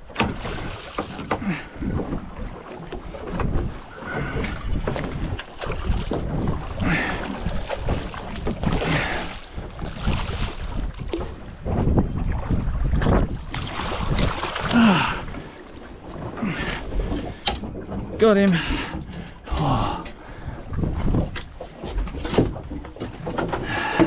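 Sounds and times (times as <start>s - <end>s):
wind buffeting microphone: 0.0s - 22.8s
water slopping against hull: 0.0s - 24.0s.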